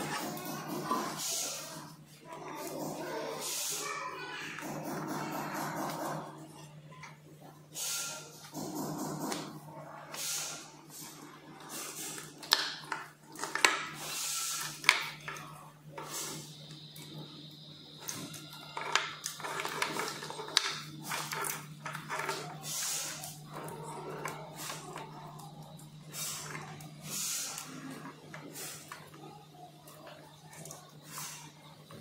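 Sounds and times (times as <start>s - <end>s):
wires and plastic rustling: 10.1s - 32.0s.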